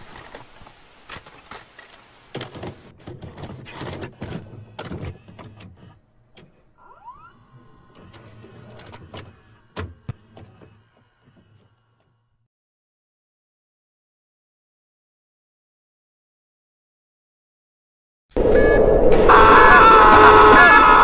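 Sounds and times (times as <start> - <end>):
tape mechanism clunks and clicks: 0.0 - 6.7, 7.6 - 11.7
motor whirring whine: 4.1 - 12.5.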